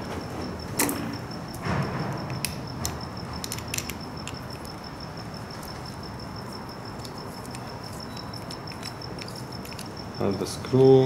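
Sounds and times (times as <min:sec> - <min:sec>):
faint steady high whine: 0:00.0 - 0:11.0.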